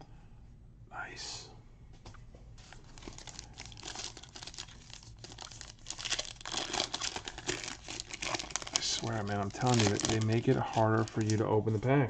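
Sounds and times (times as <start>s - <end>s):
foil wrapper crinkling: 2.6s - 12.0s.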